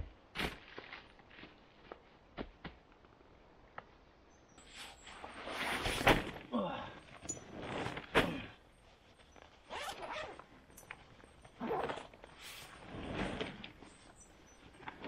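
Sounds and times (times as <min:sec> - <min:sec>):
zip being pulled open: 0:09.7 - 0:10.4, 0:11.5 - 0:13.7.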